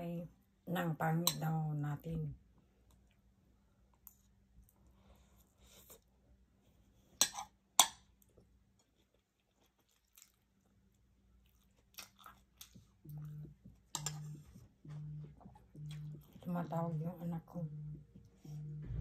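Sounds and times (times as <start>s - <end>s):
close chewing of food: 8.0s - 16.5s
phone buzzing: 13.1s - 16.3s, 17.6s - 19.0s.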